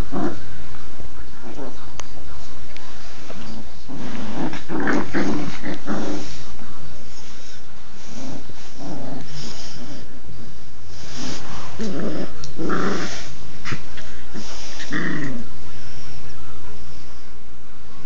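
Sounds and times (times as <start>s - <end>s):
puppies growling: 0.0s - 0.8s, 2.9s - 16.3s.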